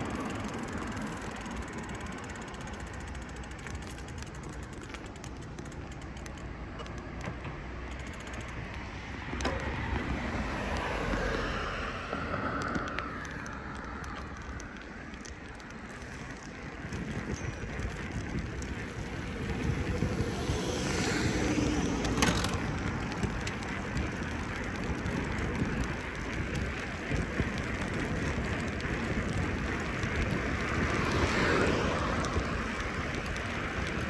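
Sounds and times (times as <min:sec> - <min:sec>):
bicycle tyres rolling: 0:00.0 - 0:34.0
bike clicks and rattles: 0:00.0 - 0:34.0
wind on microphone: 0:09.5 - 0:34.0.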